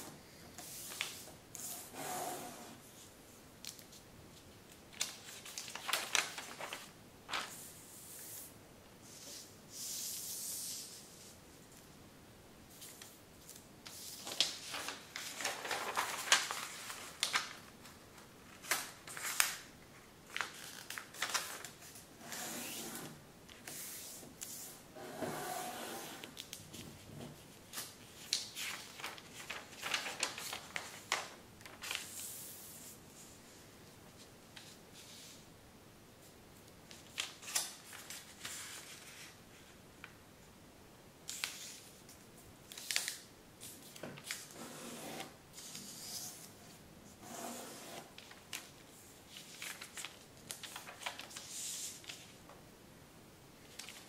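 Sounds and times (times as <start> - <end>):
paper rustling and crinkling: 3.0 - 7.7, 12.8 - 22.4, 26.2 - 33.0, 36.9 - 39.8, 41.3 - 44.6, 48.0 - 52.4, 53.6 - 54.0.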